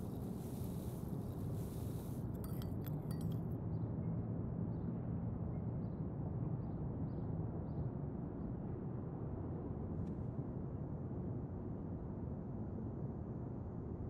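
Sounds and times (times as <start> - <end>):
spoon clinking against ceramic cup: 2.4 - 3.4.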